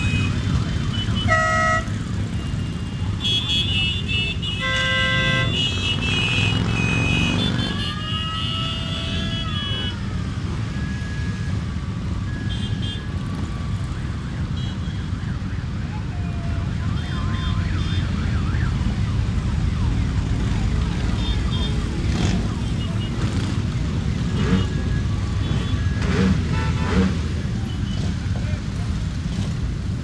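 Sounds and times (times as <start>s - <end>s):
horn toots: 0.0s - 2.0s, 3.2s - 10.0s, 24.2s - 28.2s
motorcycle engines rumbling: 0.0s - 30.0s.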